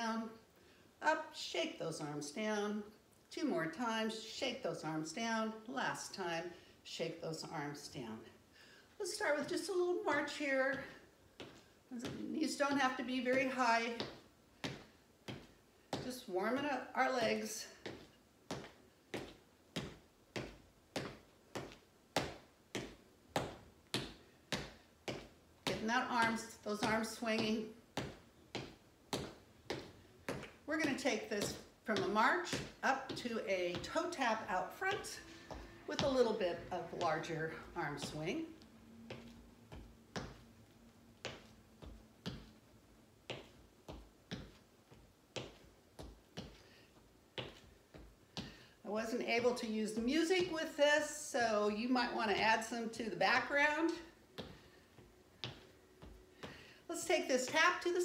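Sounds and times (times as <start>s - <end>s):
footsteps on hardwood floor: 10.6s - 12.4s, 13.3s - 48.6s, 53.4s - 56.7s.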